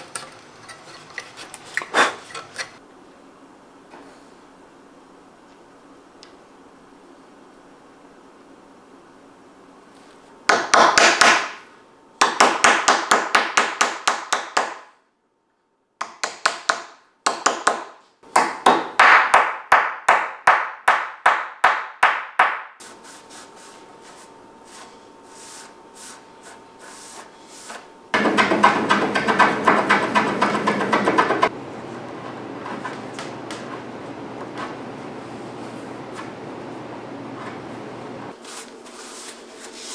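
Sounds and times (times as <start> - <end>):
wooden mallet tapping wood: 28.2 - 31.5.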